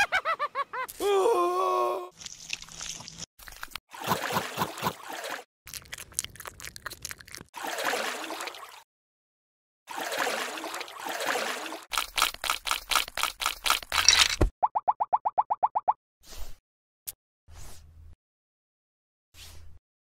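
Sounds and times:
water splashing and pouring: 2.1s - 8.9s, 9.9s - 14.5s.

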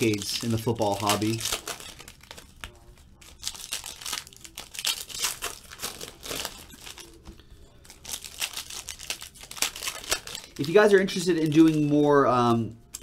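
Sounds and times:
foil wrappers crinkling: 0.0s - 13.0s.

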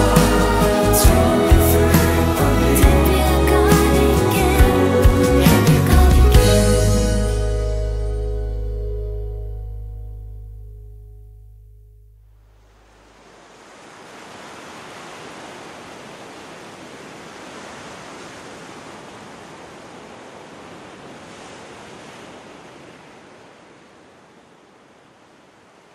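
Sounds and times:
waves breaking on a beach: 12.9s - 25.9s.

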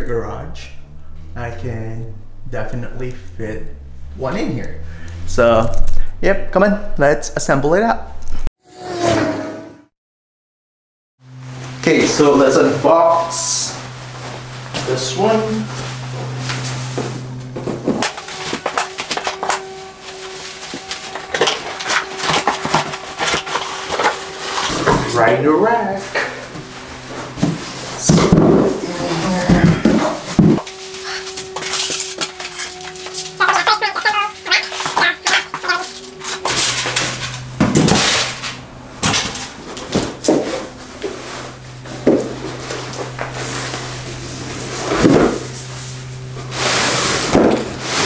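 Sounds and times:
cardboard and paper rustling: 13.2s - 25.0s, 26.3s - 38.6s
dull knocks of parts set down: 36.5s - 40.6s.

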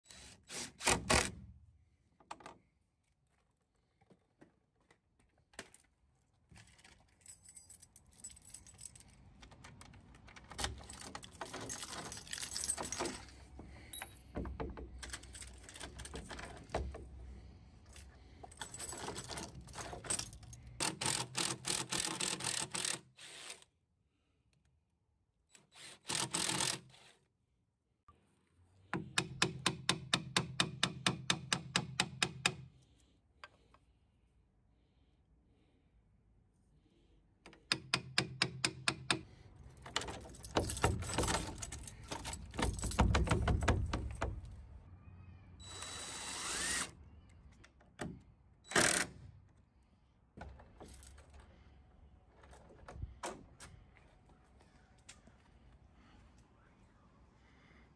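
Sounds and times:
metal lock clicking and rattling: 39.8s - 44.5s.

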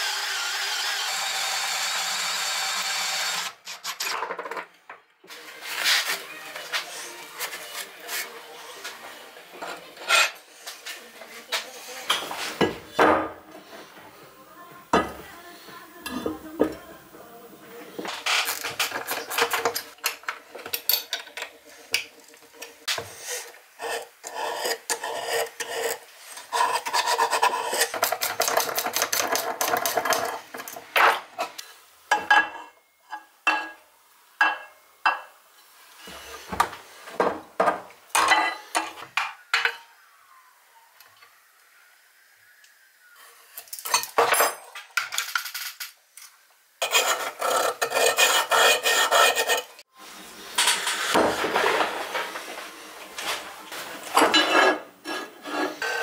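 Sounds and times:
scraping and rasping on metal: 23.2s - 30.7s, 46.8s - 49.8s, 54.1s - 56.0s.

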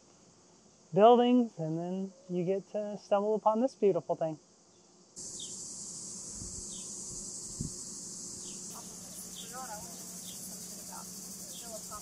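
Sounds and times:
high-pitched insect drone: 5.2s - 12.0s.

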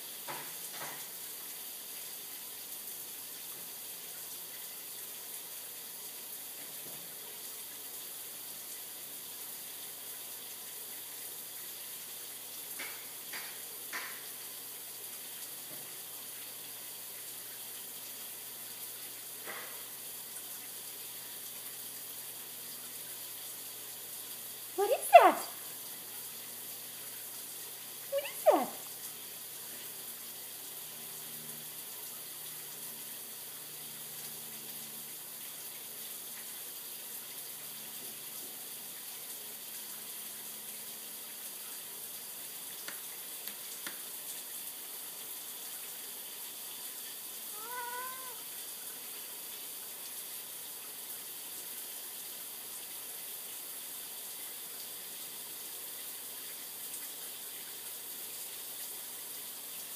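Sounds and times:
cat meowing: 28.2s - 28.8s, 47.6s - 48.5s.

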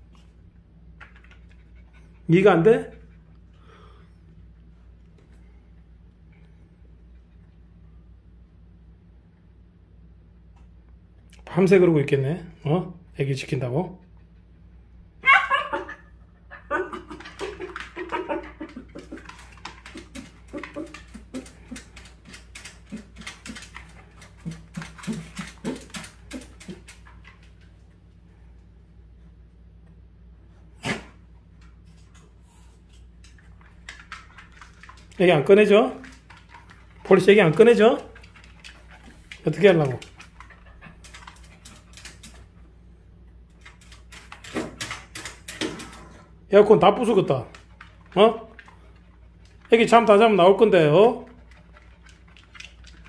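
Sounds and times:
dog whimpering: 15.2s - 19.4s
dog claws scratching and knocking: 17.0s - 27.8s, 32.9s - 42.6s, 43.5s - 46.1s, 51.2s - 53.0s.

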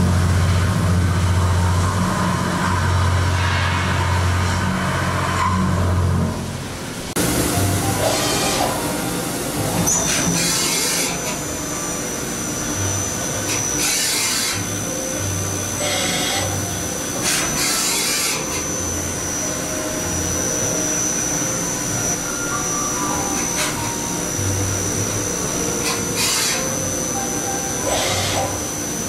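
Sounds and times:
milling machine running: 0.0s - 29.0s
thin high-pitched whine: 0.4s - 29.0s.

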